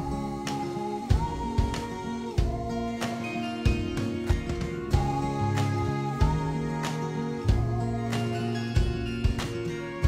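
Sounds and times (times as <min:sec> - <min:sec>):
background music with a beat: 0:00.0 - 0:10.0.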